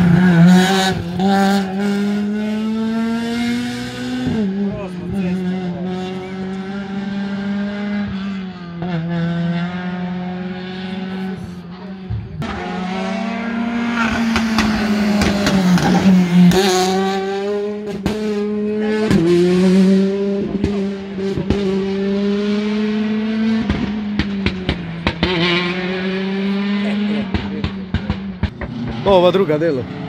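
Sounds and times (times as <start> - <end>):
rally car engine at high revs: 0.0 - 30.0
sharp exhaust pops: 14.0 - 16.8, 23.6 - 25.4, 27.3 - 29.3.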